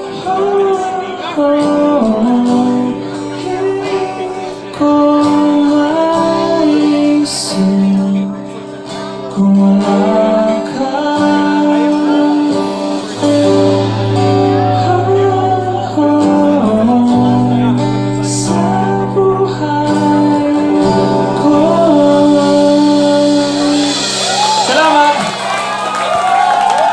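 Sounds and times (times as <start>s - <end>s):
man singing: 0.0s - 25.4s
rock band playing: 0.0s - 26.9s.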